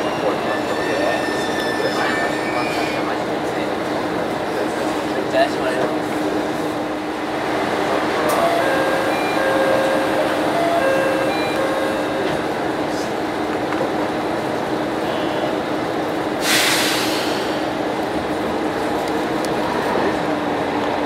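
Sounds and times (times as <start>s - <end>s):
air hiss burst: 16.4s - 17.6s.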